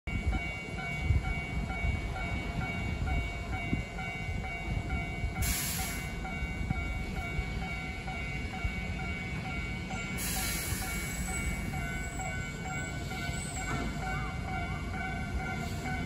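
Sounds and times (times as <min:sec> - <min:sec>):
electric train rumbling: 0:00.1 - 0:16.0
level-crossing bell dinging: 0:00.1 - 0:16.0.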